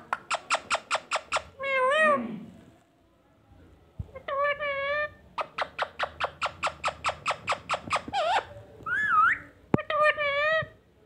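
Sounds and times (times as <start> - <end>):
parrot calling: 0.1 - 2.1, 4.3 - 10.6.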